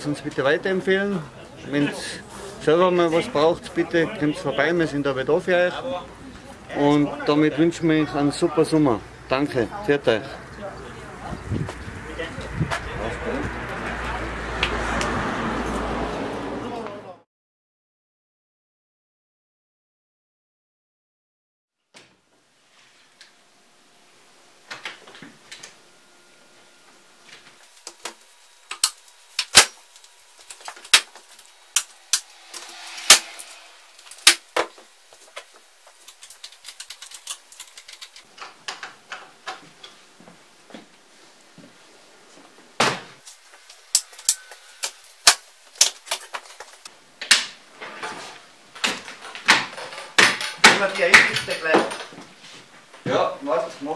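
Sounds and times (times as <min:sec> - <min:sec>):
plastic and metal parts clicking: 0:36.0 - 0:38.2.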